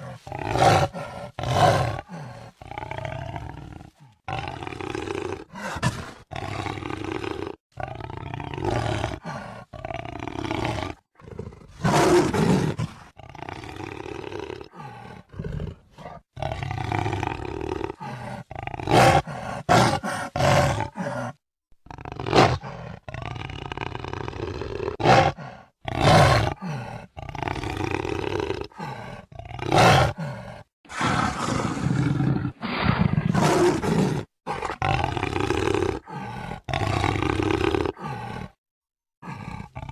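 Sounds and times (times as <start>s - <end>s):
jaguar roaring: 0.0s - 21.4s, 22.0s - 38.6s.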